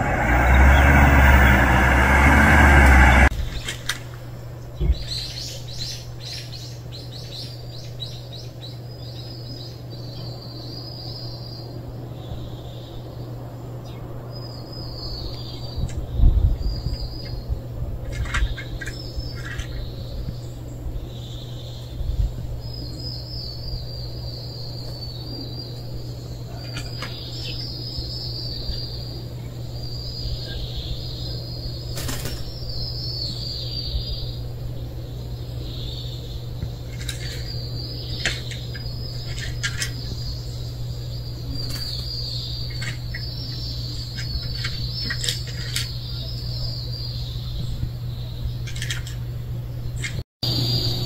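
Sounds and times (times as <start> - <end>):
high twittering chirps: 0.0 - 3.3, 49.9 - 51.0
low steady hum: 0.0 - 51.0.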